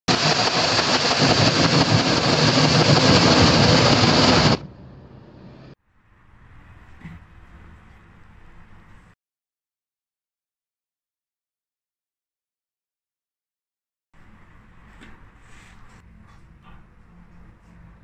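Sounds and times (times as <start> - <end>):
loud dense engine noise: 0.1 - 5.8.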